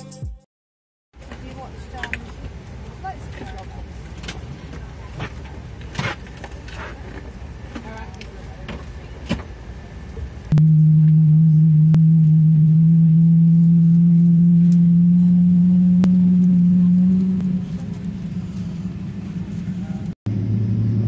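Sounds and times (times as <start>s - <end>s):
aircraft machinery low hum: 1.2s - 21.0s.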